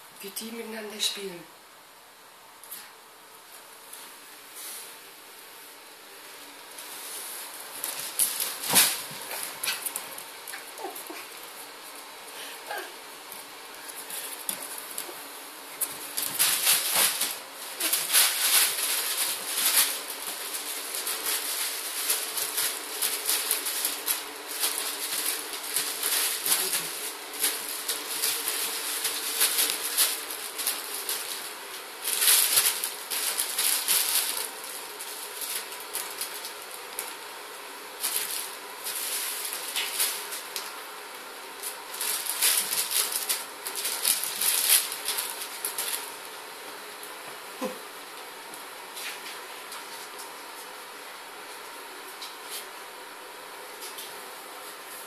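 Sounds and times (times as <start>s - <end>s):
paws scrabbling on floor: 6.8s - 12.1s, 15.8s - 37.2s.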